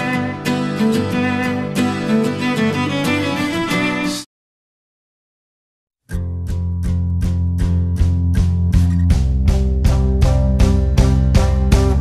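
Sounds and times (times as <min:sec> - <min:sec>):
plucked notes: 0:06.1 - 0:12.0.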